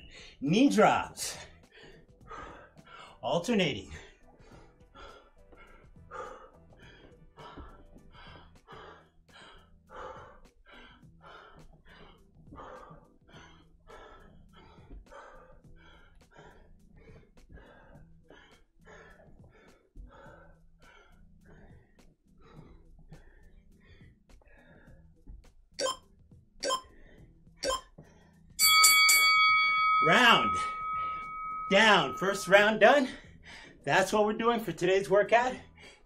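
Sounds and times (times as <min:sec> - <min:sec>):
quiet background music: 0:00.0 - 0:36.0
person breathing hard: 0:01.2 - 0:03.2, 0:03.9 - 0:25.2, 0:29.4 - 0:33.8, 0:35.6 - 0:36.0.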